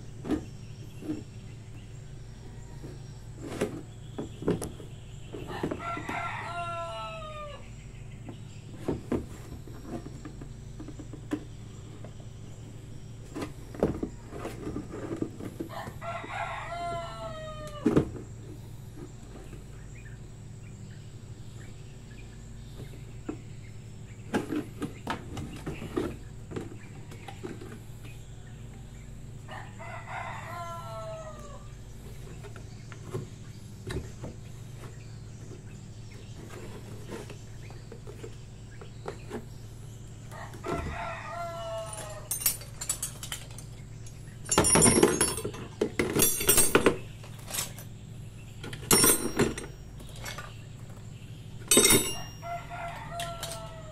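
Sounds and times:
rooster crowing: 5.5 - 7.8, 15.7 - 18.1, 29.4 - 31.9, 40.3 - 42.6, 52.0 - 53.9.

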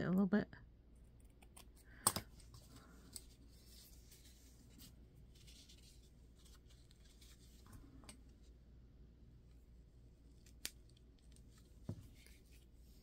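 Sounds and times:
paper rustling and scratching: 2.4 - 7.8.

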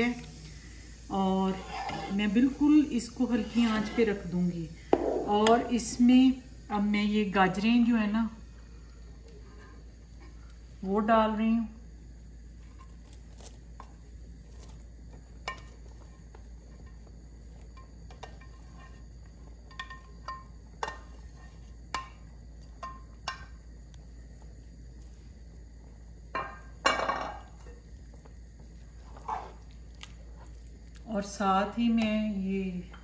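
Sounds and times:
spatula scraping glass dish: 1.5 - 2.2, 3.5 - 4.2.

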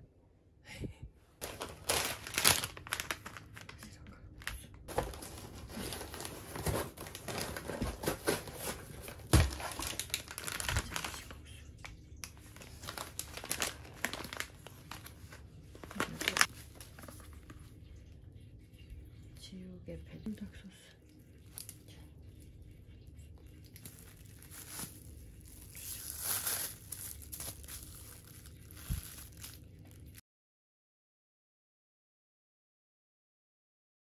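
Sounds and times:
crinkling and rustling: 1.4 - 17.8, 23.3 - 30.2.

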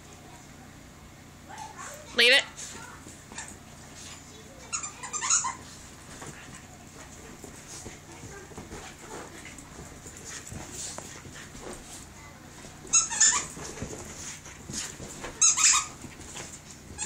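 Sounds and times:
puppy scrambling on rug: 1.5 - 17.0
loud high squeaks: 12.9 - 13.5.

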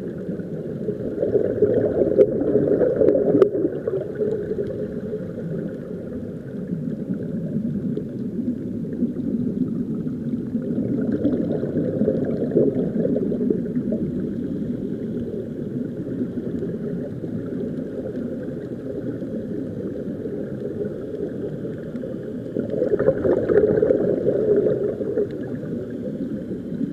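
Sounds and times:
muffled underwater rumble: 0.0 - 26.9
air bubbling underwater: 0.8 - 5.6, 10.6 - 14.2, 22.6 - 25.9.

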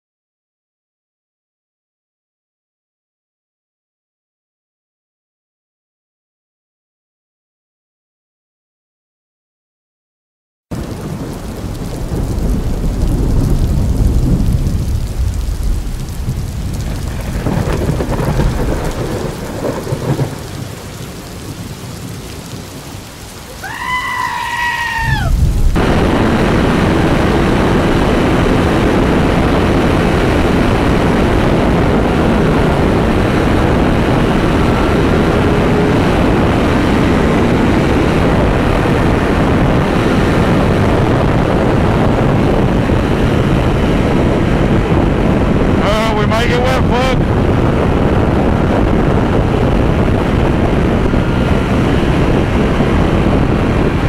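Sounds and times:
heavy rain hissing: 10.7 - 43.0, 44.3 - 53.8
thunder rumbling: 10.7 - 54.0.

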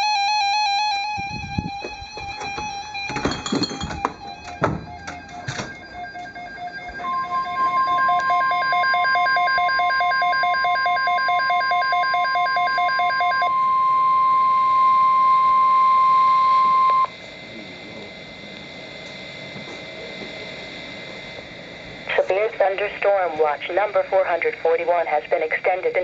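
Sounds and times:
steady warning alarm tone: 0.0 - 26.0
rapid pulsing beep: 0.6 - 17.2.

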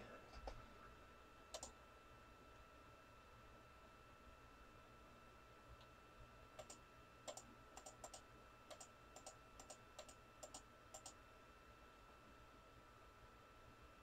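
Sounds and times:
faint computer clicks: 1.5 - 1.8, 6.6 - 11.2.

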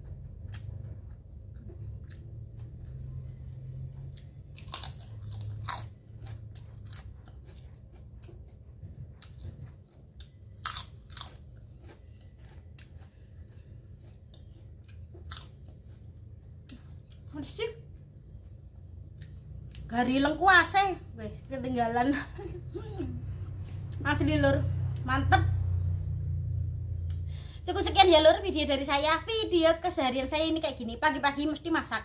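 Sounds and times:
person chewing food: 0.0 - 19.9
low steady hum: 0.0 - 32.0.

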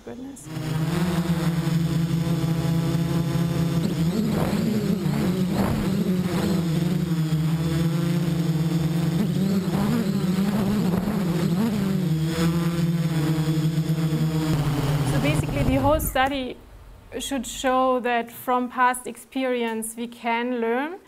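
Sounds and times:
drone propellers buzzing: 0.4 - 16.4.

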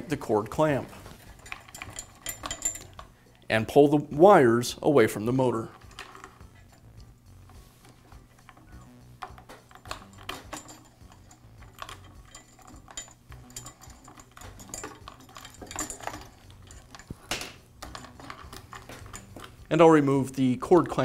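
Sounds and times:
electrical wires clicking and rustling: 0.0 - 3.8, 5.4 - 21.0.

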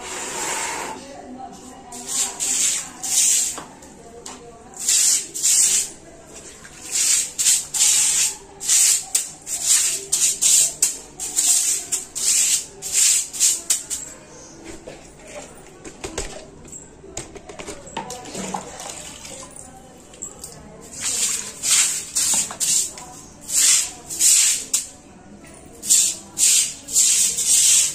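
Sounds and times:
stiff bristles scrubbing stone floor: 1.7 - 3.8, 4.8 - 14.1, 20.8 - 24.9, 25.8 - 27.9.

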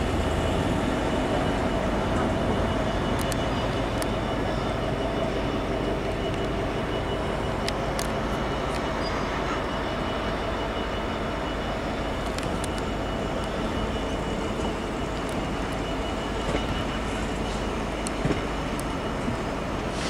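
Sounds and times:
train wheels rumbling on rails: 0.0 - 20.0.

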